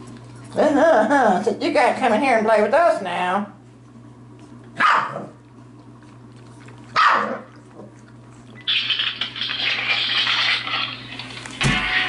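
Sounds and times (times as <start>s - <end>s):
puppy barking: 4.8s - 5.4s, 7.0s - 7.6s.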